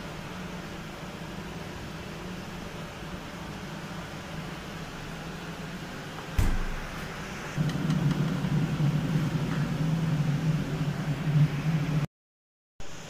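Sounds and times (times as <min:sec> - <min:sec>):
low rumbling noise: 0:06.3 - 0:12.1
sharp knock: 0:06.4 - 0:07.2.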